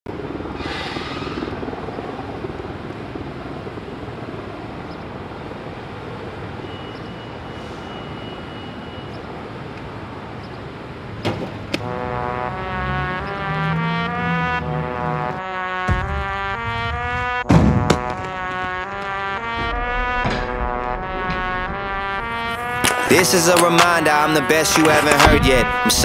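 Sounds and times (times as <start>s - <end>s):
traffic noise: 0.1s - 15.5s, 17.9s - 26.0s
music with brass: 11.8s - 26.0s
sharp knocks: 15.8s - 23.9s.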